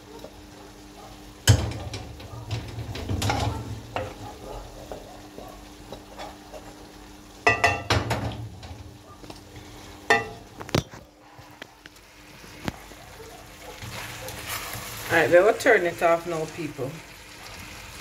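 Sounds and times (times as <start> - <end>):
soft frying sizzle: 0.0 - 18.0
spoon knocking against metal pot: 1.4 - 4.2, 7.5 - 8.4, 10.1 - 10.4.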